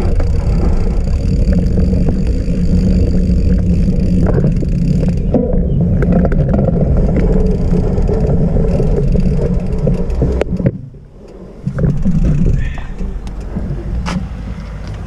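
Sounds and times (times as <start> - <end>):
bike clicks and rattles: 0.0 - 15.0
bike tyres rumbling on rough trail: 0.0 - 15.0.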